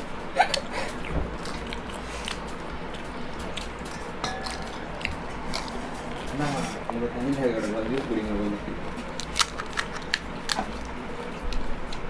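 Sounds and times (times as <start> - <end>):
crisp shells crunching: 9.0 - 11.0.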